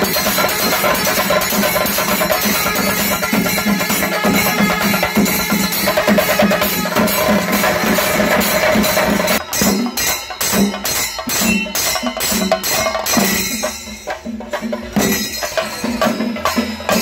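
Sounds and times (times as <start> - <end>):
drum ensemble playing: 0.0 - 17.0.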